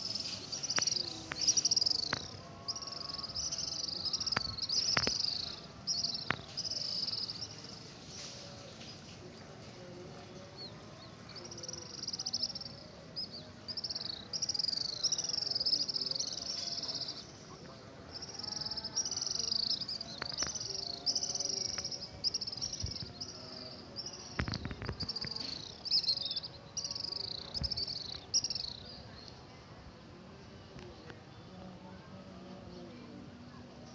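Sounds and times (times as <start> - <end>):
small birds trilling: 0.1 - 7.8.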